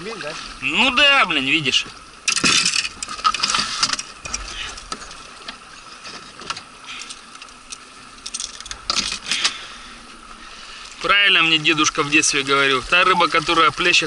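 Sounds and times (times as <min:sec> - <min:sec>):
fishing tackle clicking and rattling: 0:02.3 - 0:05.2, 0:06.4 - 0:09.5.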